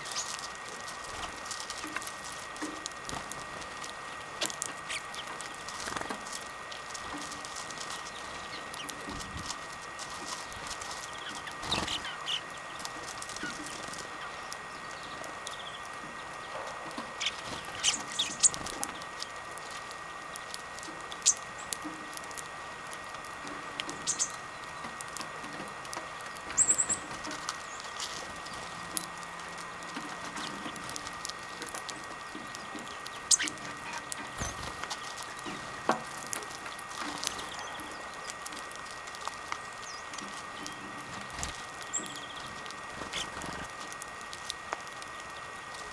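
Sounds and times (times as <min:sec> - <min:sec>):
birds cracking seeds: 0:00.0 - 0:45.9
faint high hum: 0:00.0 - 0:45.9
bird chirps: 0:11.0 - 0:12.8, 0:13.4 - 0:16.6, 0:17.2 - 0:19.1, 0:24.0 - 0:24.8, 0:26.5 - 0:28.8, 0:32.2 - 0:33.6, 0:41.8 - 0:43.3.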